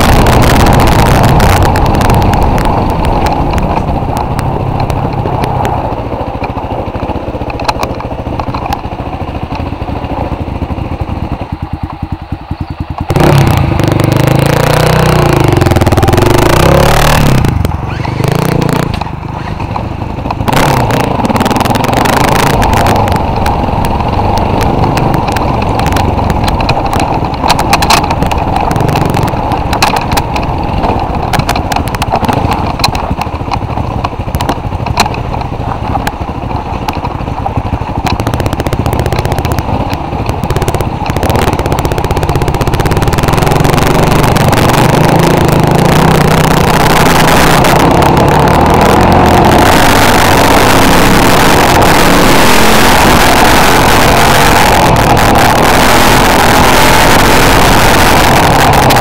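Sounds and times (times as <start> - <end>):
off-road vehicle engine running: 0.0 - 59.0
rattles and knocks from bumps: 15.5 - 50.4.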